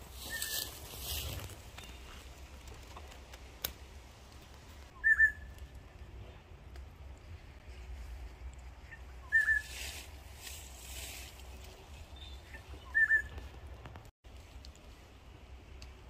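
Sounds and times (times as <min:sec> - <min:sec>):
bird whistling call: 0:00.2 - 0:00.7, 0:05.0 - 0:05.5, 0:09.2 - 0:09.7, 0:12.2 - 0:13.4.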